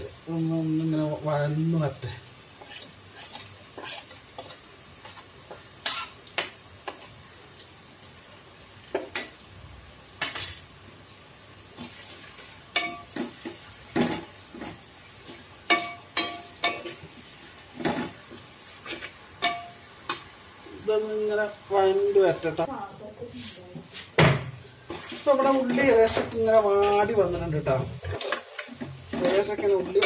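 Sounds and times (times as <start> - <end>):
onions sizzling in a pot: 0.0 - 30.0
spatula scraping and knocking pot: 2.6 - 7.1, 23.9 - 30.0.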